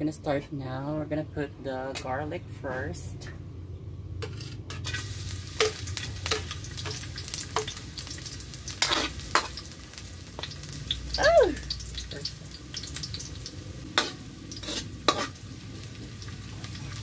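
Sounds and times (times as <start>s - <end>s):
metal spatula scraping a pan: 4.2s - 7.8s, 8.7s - 9.6s, 13.9s - 15.9s
garlic sizzling in a frying pan: 4.2s - 17.0s.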